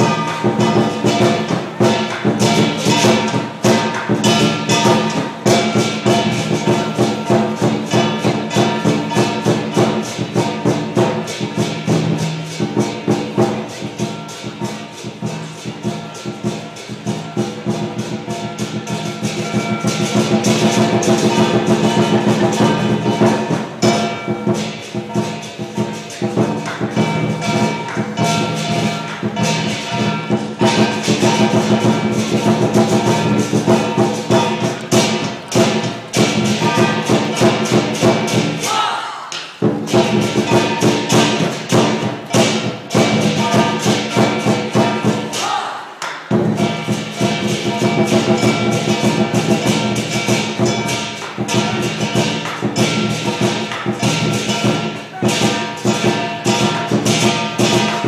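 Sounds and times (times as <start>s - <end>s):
gong ringing: 0.0s - 38.6s
cymbals clashing: 0.0s - 58.0s
drum beating fast: 0.0s - 58.0s.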